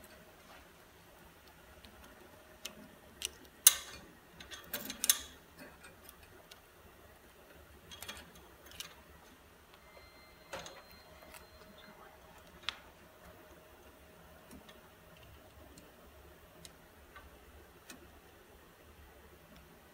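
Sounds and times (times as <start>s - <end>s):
metallic clicks and knocks: 2.6s - 6.4s.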